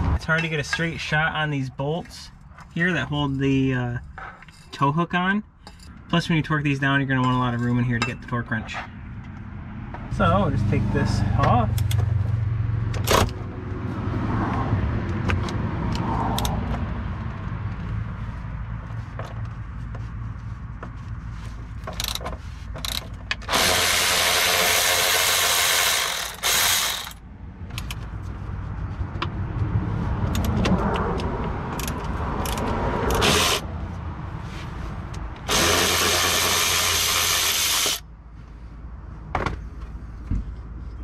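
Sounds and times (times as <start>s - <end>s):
cordless power tool running: 23.5s - 27.2s, 33.1s - 33.6s, 35.5s - 38.0s.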